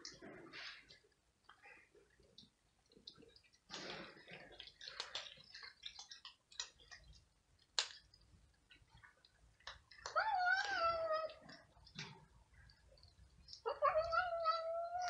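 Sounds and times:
cats crunching dry kibble: 0.0 - 15.0
cat meowing: 10.1 - 11.4, 13.7 - 15.0.

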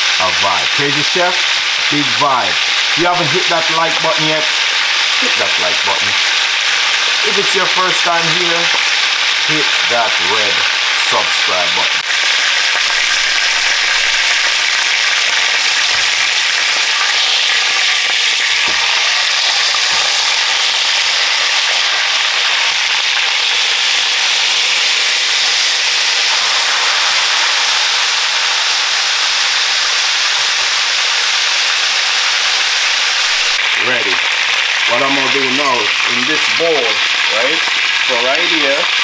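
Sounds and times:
chicken sizzling in hot oil: 0.0 - 39.0.

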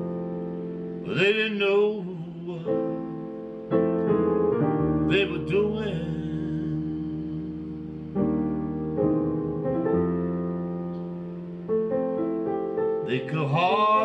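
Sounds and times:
piano chords: 0.0 - 14.0
man singing with vibrato: 1.0 - 3.4, 5.1 - 8.2, 13.1 - 14.0.

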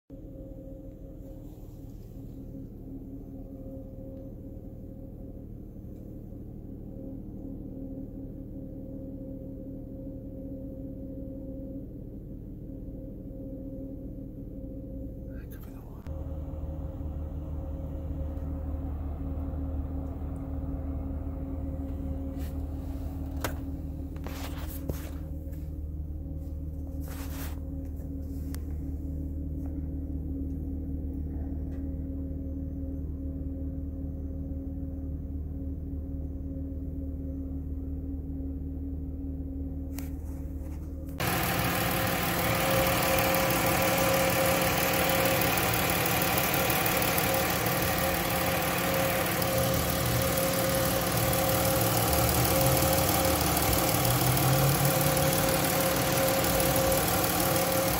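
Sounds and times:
van engine idling: 41.2 - 57.9.

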